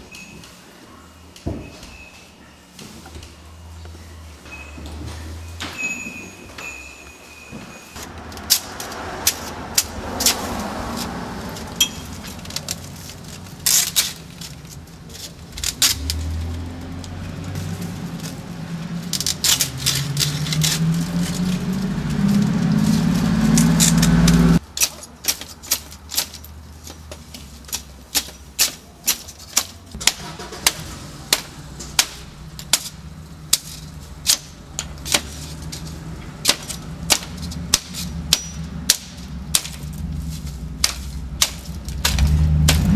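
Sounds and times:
low engine-like rumble: 0:08.0 - 0:24.7, 0:29.7 - 0:42.9
glass panes smashing: 0:11.8 - 0:14.6.

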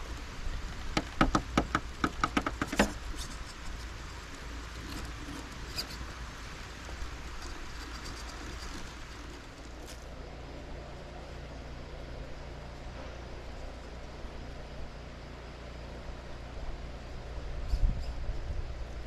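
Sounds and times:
rc crawler knocking over stones: 0:00.8 - 0:03.0.

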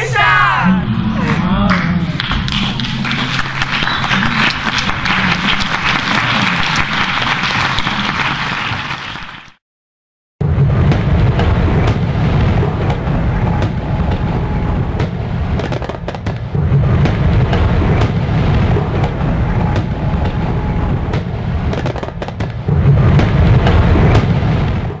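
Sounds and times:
fireworks crackling: 0:02.2 - 0:09.6, 0:15.1 - 0:24.9
fireworks booming: 0:10.4 - 0:25.0.

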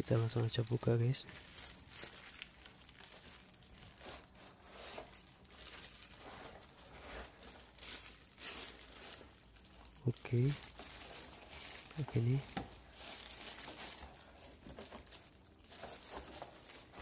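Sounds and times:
plastic wrapping crinkling: 0:00.0 - 0:17.0
cardboard box rustling: 0:10.8 - 0:17.0.

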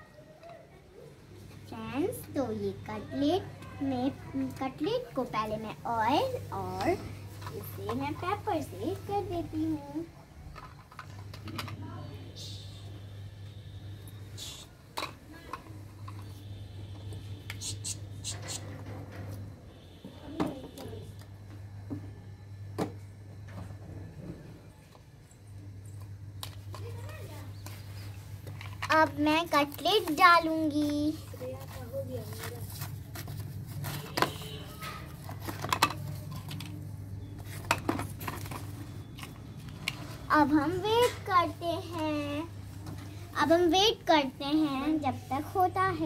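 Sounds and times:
plastic toys clicking and clattering: 0:06.6 - 0:08.9, 0:10.4 - 0:11.9, 0:15.0 - 0:16.3, 0:26.4 - 0:41.6.

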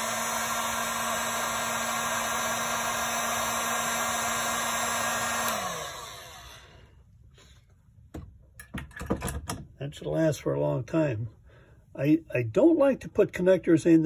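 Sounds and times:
hot air gun fan hum: 0:00.0 - 0:07.1.

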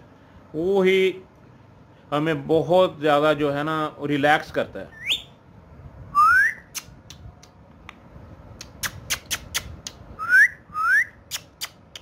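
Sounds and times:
parrot rising whistles: 0:05.0 - 0:05.3, 0:06.1 - 0:06.9, 0:08.8 - 0:11.2.

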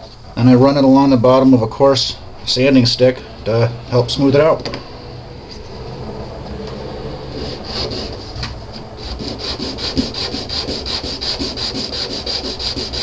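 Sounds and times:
resin part sanding strokes: 0:07.2 - 0:13.0.

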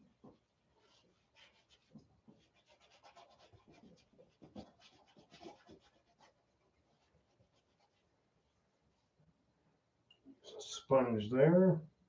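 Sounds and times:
paintbrush scratching on canvas: 0:00.2 - 0:08.2.

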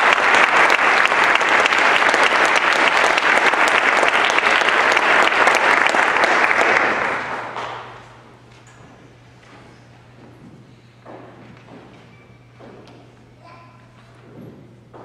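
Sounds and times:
audience applause: 0:00.0 - 0:08.2.

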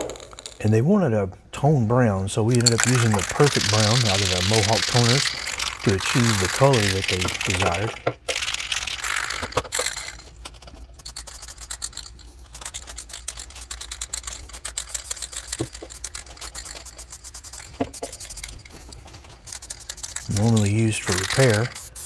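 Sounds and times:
can clicking and rattling: 0:00.0 - 0:00.6, 0:02.5 - 0:22.0
aerosol can spraying: 0:02.6 - 0:10.2, 0:12.6 - 0:22.0.

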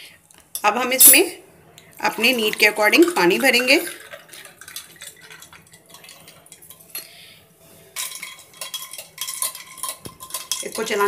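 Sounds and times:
spoon clinking against glass: 0:03.2 - 0:07.1, 0:08.0 - 0:11.0.

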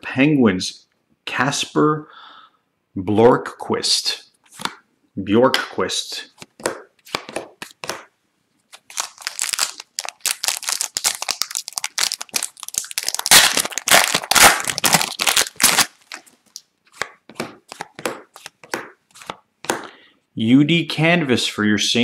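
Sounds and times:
foil wrapper tearing and crinkling: 0:08.7 - 0:16.6.

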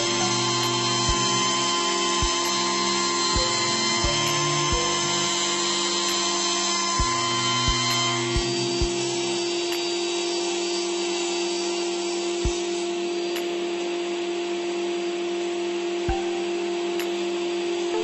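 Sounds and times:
panel saw cutting: 0:00.0 - 0:14.0.

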